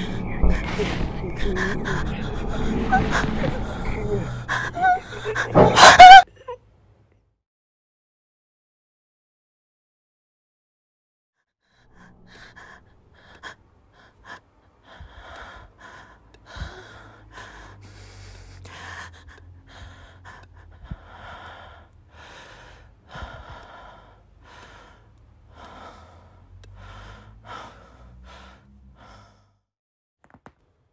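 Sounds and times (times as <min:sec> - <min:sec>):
low rumble: 0:00.0 - 0:05.8
person breathing hard: 0:00.0 - 0:06.2, 0:11.7 - 0:29.7.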